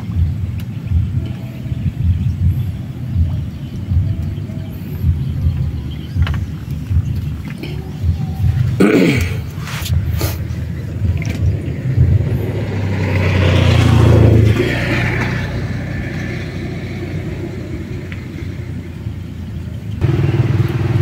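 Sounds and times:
motor engine humming: 0:00.0 - 0:21.0
steady engine sound: 0:00.0 - 0:21.0.

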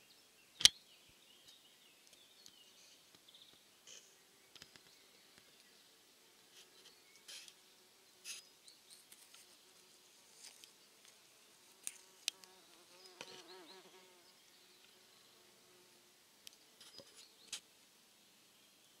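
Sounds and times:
flying insects buzzing: 0:03.8 - 0:16.1.

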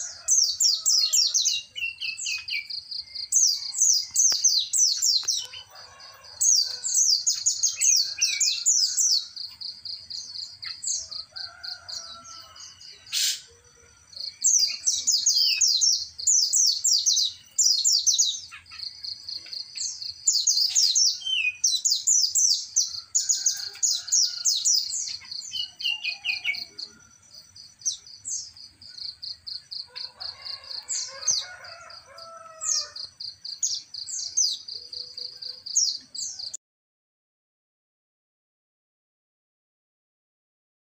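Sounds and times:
songbirds chirping and trilling: 0:00.0 - 0:36.6.

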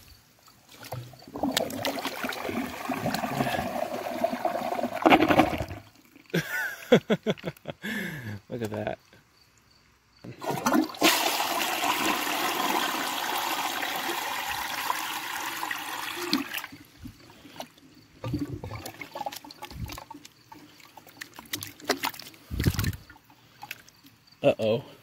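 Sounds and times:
water trickling and splashing: 0:00.4 - 0:06.4, 0:10.4 - 0:24.2
toilet flushing water rushing: 0:01.2 - 0:05.9, 0:10.4 - 0:17.0.

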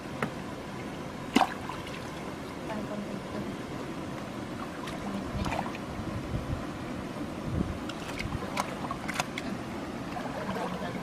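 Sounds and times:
wind buffeting microphone: 0:04.8 - 0:09.2.

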